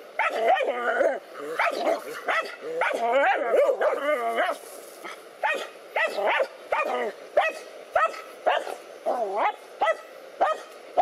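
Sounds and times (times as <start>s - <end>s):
dog barking: 0.2s - 0.7s, 1.5s - 4.6s, 5.4s - 8.8s, 9.4s - 11.0s.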